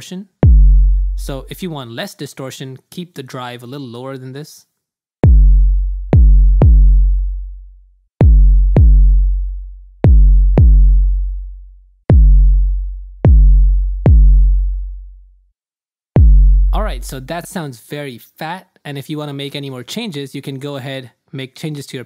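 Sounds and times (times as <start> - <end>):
distorted sub kick drum: 0.4 - 1.8, 5.2 - 15.1, 16.2 - 17.5.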